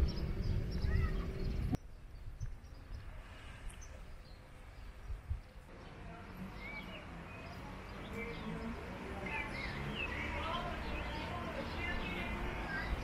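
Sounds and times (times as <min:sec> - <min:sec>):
low rumble: 0:00.0 - 0:01.8
faint outdoor background noise: 0:00.0 - 0:13.0
small birds chirping: 0:00.0 - 0:13.0.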